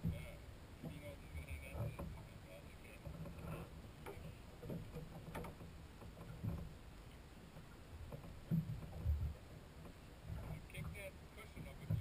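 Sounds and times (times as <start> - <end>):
low uneven rumble: 0.0 - 12.0.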